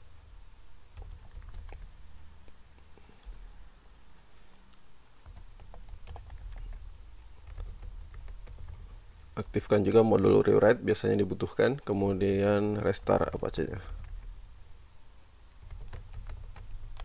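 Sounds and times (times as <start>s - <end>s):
low steady hum: 0.0s - 17.0s
keyboard typing: 0.9s - 2.0s, 3.0s - 3.5s, 4.5s - 9.0s, 15.6s - 17.0s.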